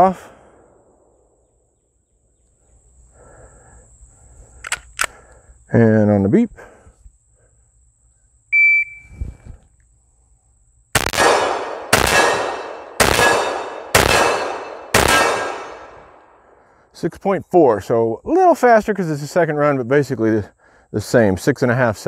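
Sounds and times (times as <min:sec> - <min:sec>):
shot timer beep: 0:08.5 - 0:09.1
pistol shots with echo: 0:11.0 - 0:16.2.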